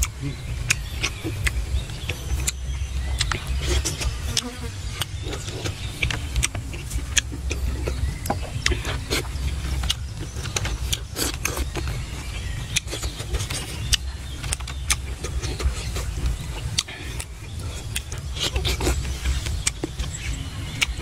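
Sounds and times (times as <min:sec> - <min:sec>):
person chewing food: 0:00.0 - 0:21.0
steady low rumble: 0:00.0 - 0:21.0
wet lip-smacks and mouth clicks: 0:12.7 - 0:20.2.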